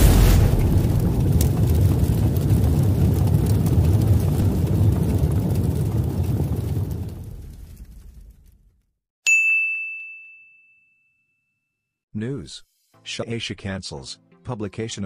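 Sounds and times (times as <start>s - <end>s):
deep steady rumbling: 0.0s - 8.5s
faint crackles: 0.0s - 8.8s.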